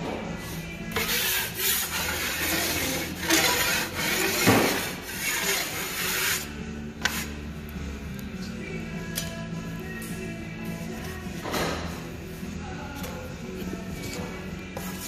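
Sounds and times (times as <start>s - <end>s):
taping knife scraping drywall: 1.0s - 7.3s.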